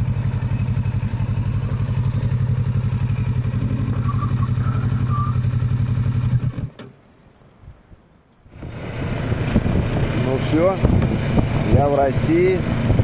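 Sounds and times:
motorcycle engine idling: 0.0s - 6.5s.

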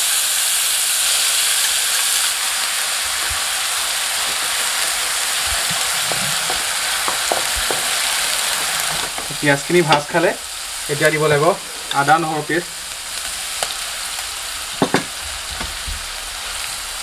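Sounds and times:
onion sizzling in oil: 0.0s - 17.0s
spatula scraping a pan: 2.9s - 10.3s.

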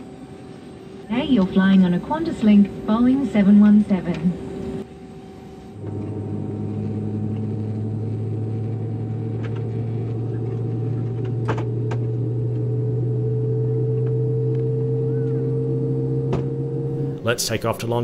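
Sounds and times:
jet engine idling drone and whine: 0.0s - 18.0s.

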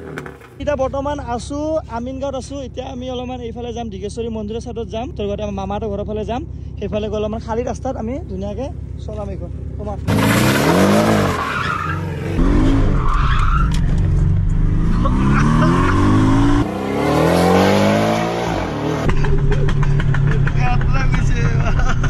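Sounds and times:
sports car engine revving: 10.0s - 13.1s, 13.7s - 22.0s
tyres squealing and skidding: 10.1s - 19.1s.

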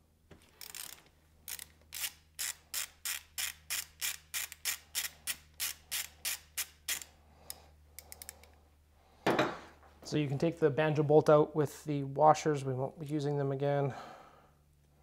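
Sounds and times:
ratchet wrench clicking: 0.6s - 7.1s, 8.0s - 8.4s.

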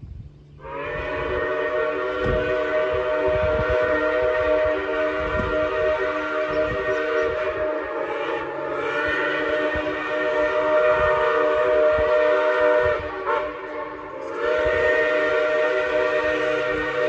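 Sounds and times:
steam locomotive whistle: 0.6s - 17.0s.

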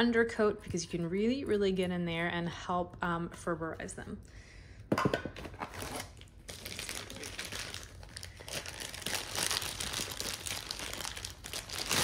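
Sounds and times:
plastic bag crinkling: 5.7s - 12.0s.

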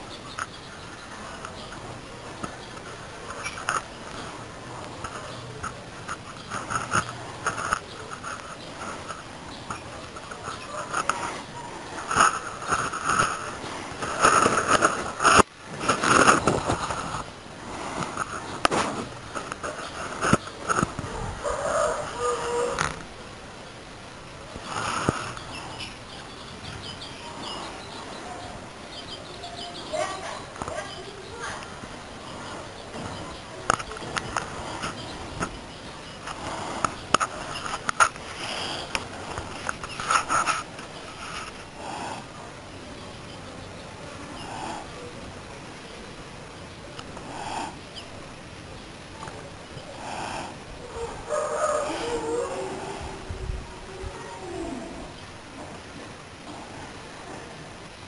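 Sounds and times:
cockerels scuffling: 0.0s - 23.1s, 29.2s - 42.3s.

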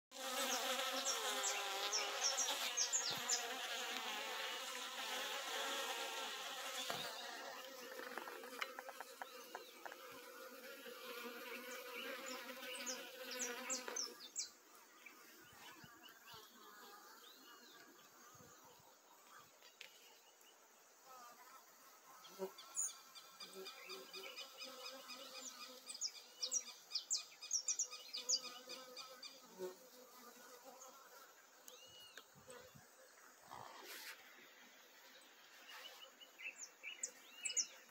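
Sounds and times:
bees buzzing in flight: 0.1s - 14.5s.

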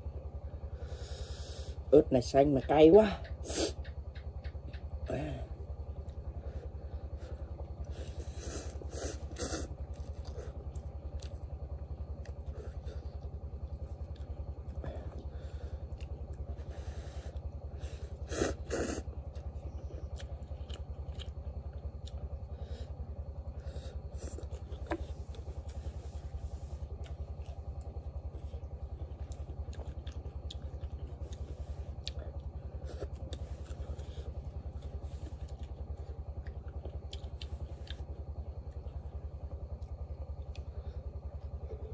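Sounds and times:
small engine droning: 0.0s - 41.9s
noodles slurped and chewed: 8.0s - 11.4s.

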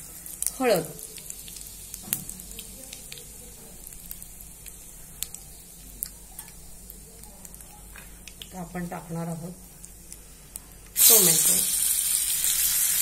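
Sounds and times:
oil sizzling in a pan: 0.0s - 7.0s, 9.9s - 13.0s
mustard seeds popping: 0.4s - 8.6s.

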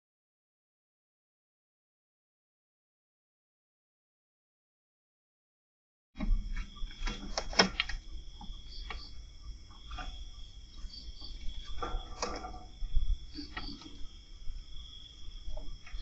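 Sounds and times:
crickets chirping: 6.2s - 16.0s
sharp clicks: 6.5s - 9.2s.

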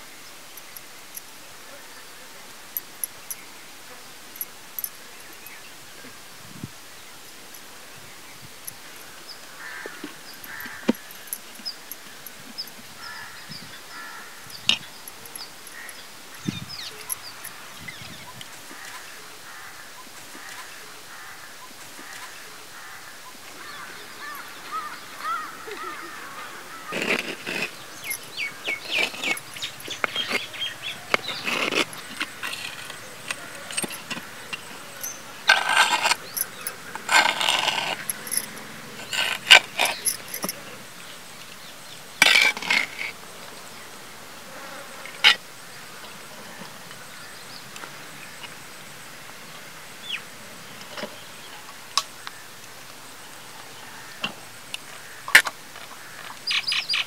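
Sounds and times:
bird calls: 8.0s - 43.0s, 56.0s - 57.0s.

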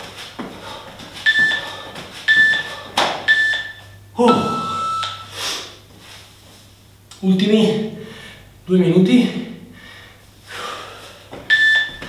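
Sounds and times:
loud breath: 0.5s - 3.2s, 9.7s - 11.3s
timer beeps: 1.2s - 1.7s, 2.3s - 2.7s, 3.3s - 5.3s, 11.5s - 12.0s.

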